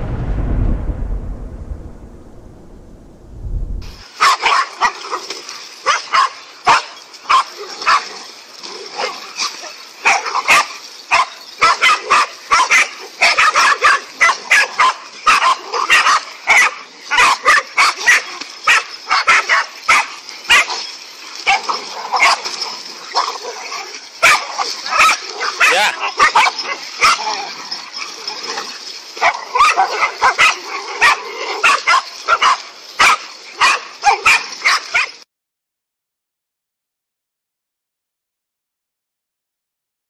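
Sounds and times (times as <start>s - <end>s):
dogs barking and yipping: 4.0s - 35.2s.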